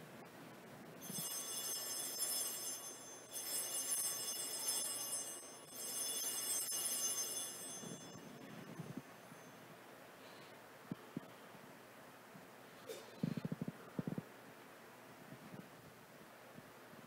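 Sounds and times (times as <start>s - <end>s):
altar bells ringing: 1.0s - 9.6s.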